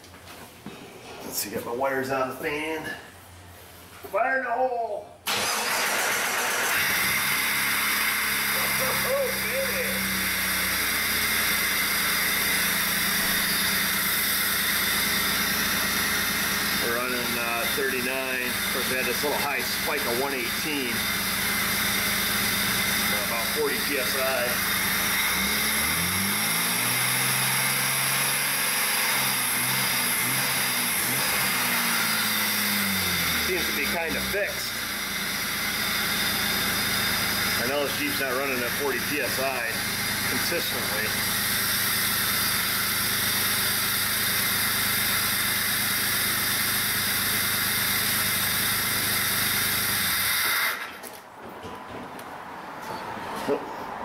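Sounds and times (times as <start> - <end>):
car engine revving: 5.3 - 45.7.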